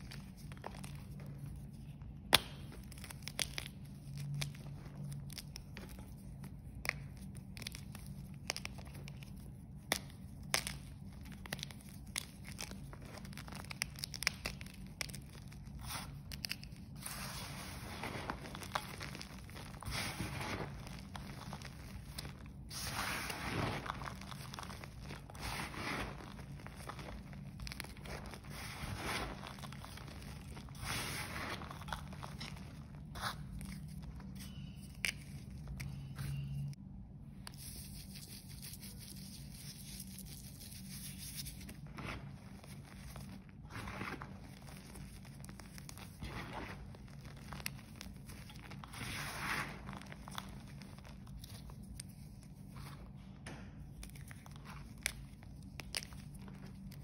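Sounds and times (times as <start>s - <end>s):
chalk crushed by hand: 9.8s - 33.8s.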